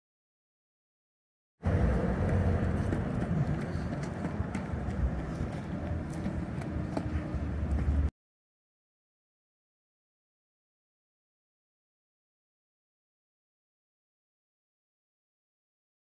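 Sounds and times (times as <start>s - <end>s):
low urban rumble: 1.6s - 8.1s.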